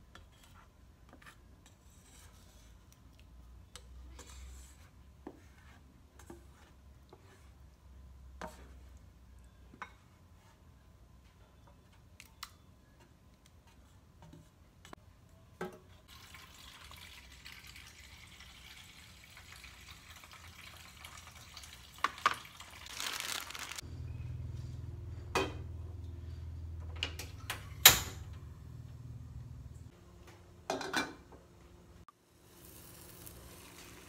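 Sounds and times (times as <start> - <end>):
water running from a tap: 16.1 - 22.9
cookware knocking and clanking: 30.7 - 31.3.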